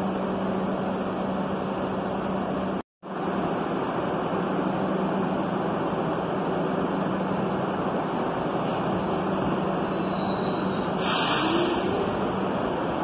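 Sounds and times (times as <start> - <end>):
subway train rumble and hum: 0.0 - 13.0
short loud hiss: 11.0 - 12.0.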